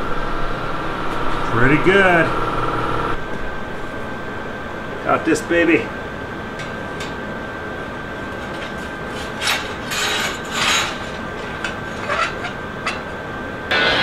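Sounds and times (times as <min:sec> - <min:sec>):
shop hum: 0:00.0 - 0:14.0
steel bars scraping: 0:08.2 - 0:13.3.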